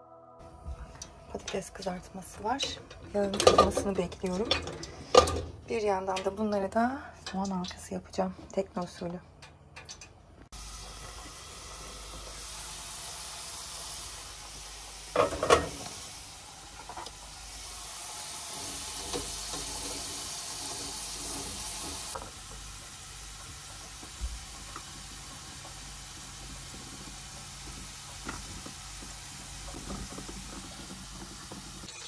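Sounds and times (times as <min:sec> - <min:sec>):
frying basket clattering: 0:01.3 - 0:06.6, 0:15.0 - 0:16.1, 0:18.6 - 0:32.0
fries sizzling in hot oil: 0:09.8 - 0:32.0.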